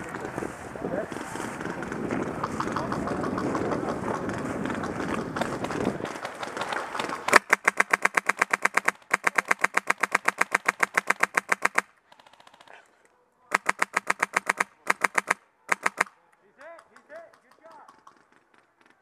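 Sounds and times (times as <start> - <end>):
airsoft rifle firing bursts: 5.1 - 12.7, 13.5 - 16.2.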